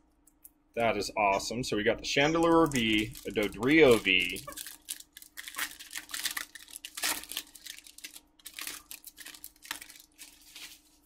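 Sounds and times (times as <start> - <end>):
foil wrapper crinkling and tearing: 2.4 - 11.0.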